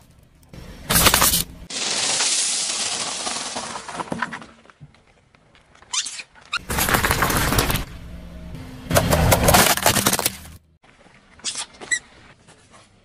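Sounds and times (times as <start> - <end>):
car tyre crushing objects: 0.9 - 5.8, 6.6 - 8.1, 8.8 - 10.8.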